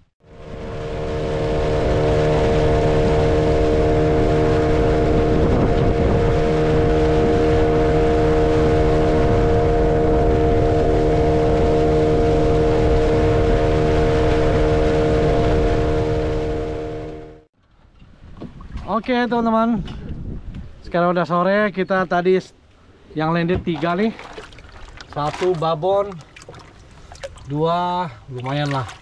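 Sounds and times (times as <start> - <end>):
boat motor humming: 0.0 - 18.6, 22.6 - 27.6
hull and water rumble: 0.0 - 29.0.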